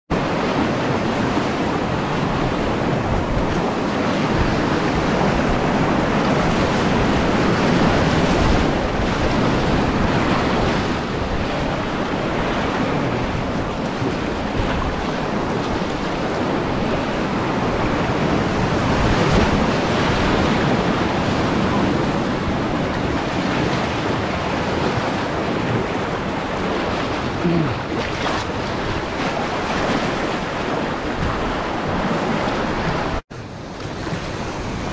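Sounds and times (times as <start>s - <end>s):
whitewater rapids rushing: 0.1s - 34.9s
wind buffeting microphone: 0.1s - 34.9s
water splashing at kayak bow: 22.7s - 34.9s.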